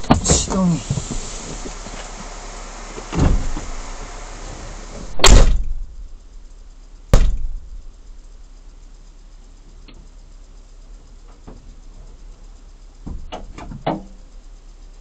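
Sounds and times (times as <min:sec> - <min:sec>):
dull thump on van body: 0:00.0 - 0:02.0, 0:02.9 - 0:03.9, 0:05.0 - 0:06.0, 0:07.1 - 0:07.9, 0:13.0 - 0:14.2
sharp metallic door slam: 0:03.1 - 0:03.8, 0:05.0 - 0:05.9, 0:07.1 - 0:07.7
loud bang: 0:05.0 - 0:06.0.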